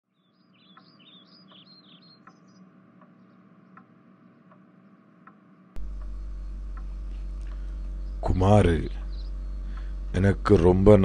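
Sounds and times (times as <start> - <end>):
birds chirping: 0.1 - 11.0
steady low hum: 0.2 - 11.0
even ticking: 0.6 - 11.0
loud low hum: 5.6 - 11.0.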